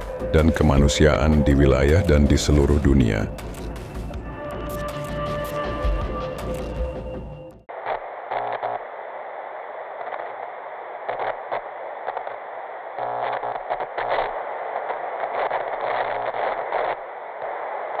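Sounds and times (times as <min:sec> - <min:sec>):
tv static hiss: 0:00.0 - 0:03.8, 0:07.7 - 0:18.0.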